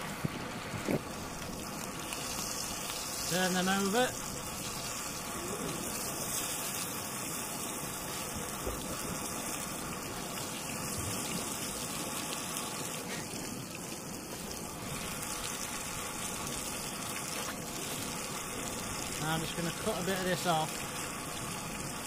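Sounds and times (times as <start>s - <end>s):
wind buffeting microphone: 0.0s - 1.7s
fish sizzling in a pan: 0.0s - 22.0s
gas burner hiss: 0.0s - 22.0s.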